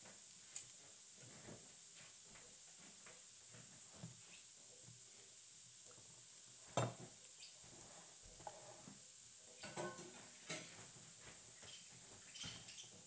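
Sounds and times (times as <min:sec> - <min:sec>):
utensils and dishes clinking: 0:09.6 - 0:10.8.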